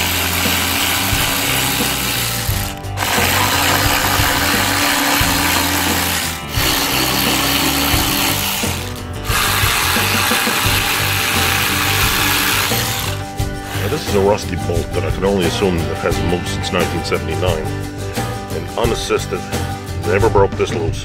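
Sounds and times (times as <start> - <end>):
cordless ratchet running: 0.0 - 14.1.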